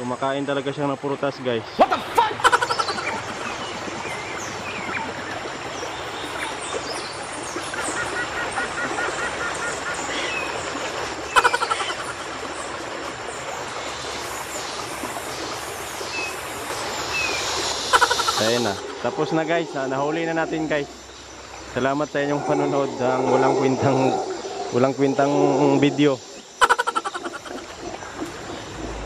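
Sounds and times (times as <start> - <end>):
birds chirping and trilling: 0.0 - 29.0
insects hissing: 13.8 - 29.0.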